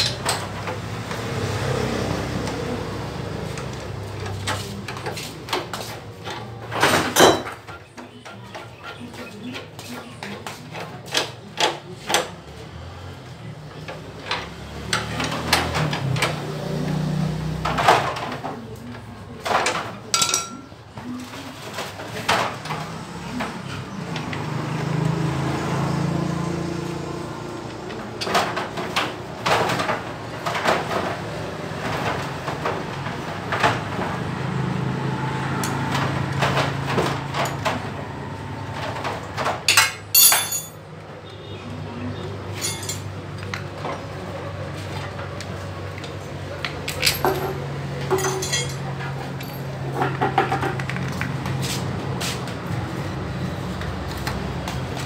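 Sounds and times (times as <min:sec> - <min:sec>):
tools and metal parts clinking: 0:19.4 - 0:20.7, 0:37.3 - 0:37.8, 0:38.9 - 0:40.8, 0:42.5 - 0:43.6, 0:46.8 - 0:50.2.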